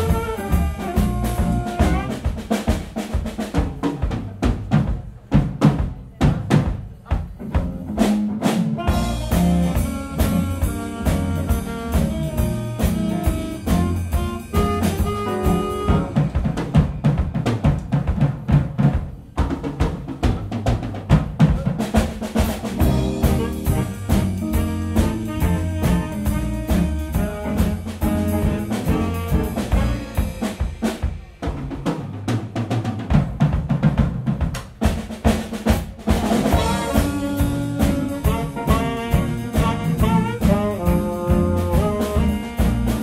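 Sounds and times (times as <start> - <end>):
saxophone section: 0.0 - 2.6, 8.8 - 16.4, 22.7 - 30.9, 36.4 - 43.0
drum kit: 0.0 - 43.0
low bass line: 8.9 - 16.2, 22.8 - 30.1.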